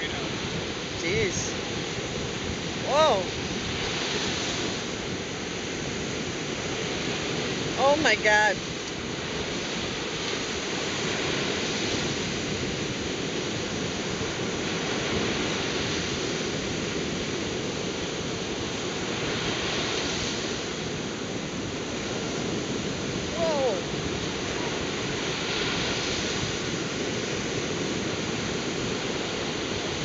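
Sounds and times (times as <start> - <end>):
ocean waves breaking: 0.0 - 30.0.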